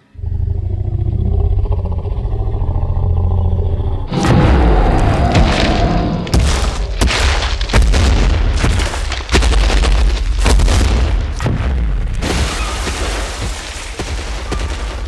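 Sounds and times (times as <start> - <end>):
deep booming bass: 0.2 - 8.9.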